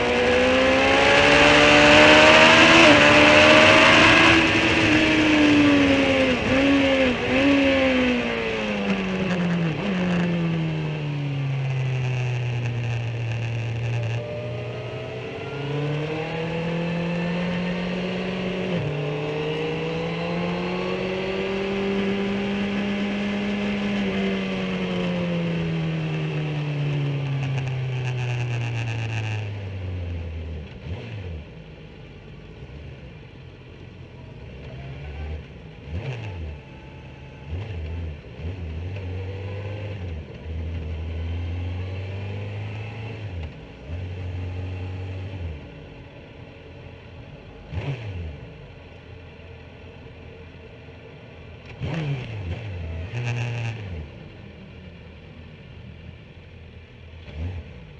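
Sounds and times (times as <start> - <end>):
motorcycle engine at low revs: 0.0 - 57.9
motorcycle throttle blips: 11.4 - 14.7, 22.6 - 29.8.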